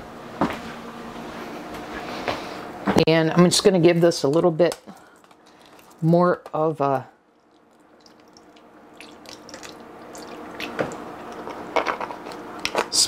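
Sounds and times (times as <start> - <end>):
liquid pouring into plastic container: 7.4 - 11.5.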